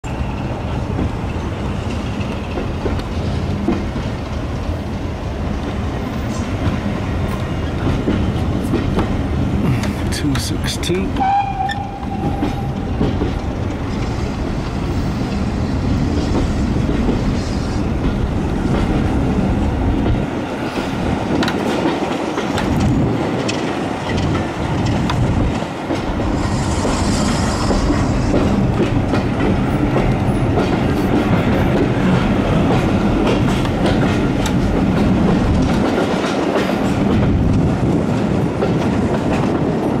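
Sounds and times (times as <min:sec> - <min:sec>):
train coaches rumbling: 0:00.0 - 0:40.0
wheels clicking over rail joints: 0:20.0 - 0:26.3, 0:27.8 - 0:40.0
brief high hiss: 0:26.3 - 0:28.4.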